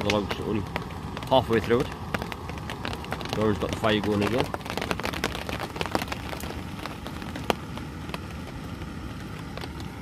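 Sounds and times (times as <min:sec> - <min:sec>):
campfire crackling and popping: 0:00.0 - 0:10.0.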